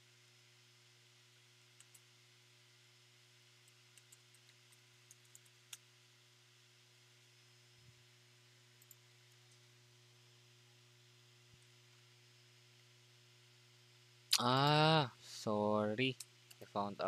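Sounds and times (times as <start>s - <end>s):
low hum and hiss: 0.0s - 17.0s
computer keyboard keystrokes: 3.6s - 5.8s.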